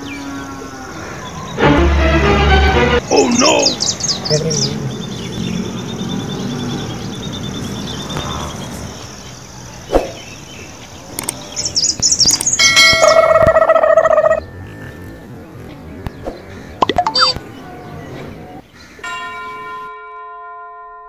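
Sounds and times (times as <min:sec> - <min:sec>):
small bird chirping: 0:03.1 - 0:18.6
click: 0:11.1 - 0:11.4
bell-like chime: 0:19.0 - 0:21.0.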